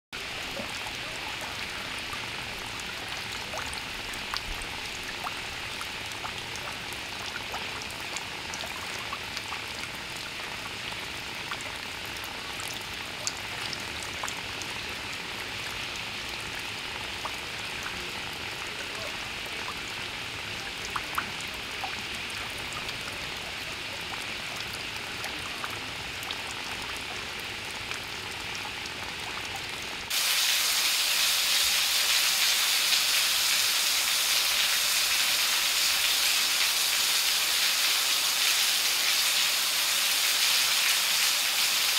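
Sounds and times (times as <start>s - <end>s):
small water drips: 0.2s - 30.4s
fountain water splashing: 0.2s - 41.9s.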